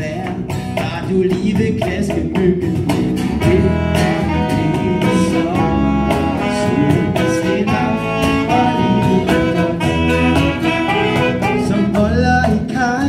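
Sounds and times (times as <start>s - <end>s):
box drum beat: 0.0s - 13.0s
electric bass: 0.0s - 13.0s
strummed acoustic guitar: 0.0s - 13.0s
saxophones: 3.4s - 12.4s.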